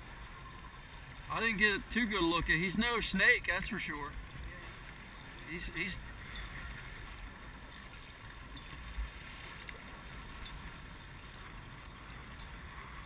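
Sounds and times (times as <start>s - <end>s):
choppy water hiss: 0.0s - 13.0s
faint clicks: 7.7s - 10.8s.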